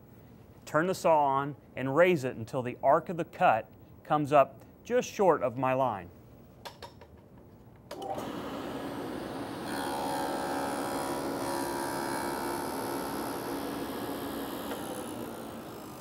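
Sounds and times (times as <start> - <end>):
table saw whining: 8.0 - 16.0
saw blade cutting into wood: 9.6 - 16.0.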